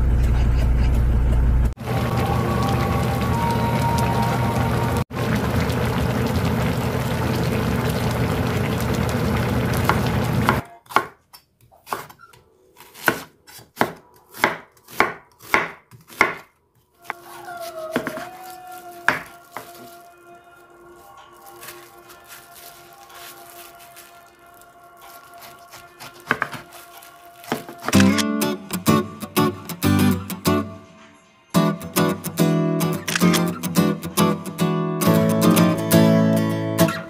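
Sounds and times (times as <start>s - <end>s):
knife chopping on cutting board: 13.0s - 16.5s, 25.7s - 26.7s.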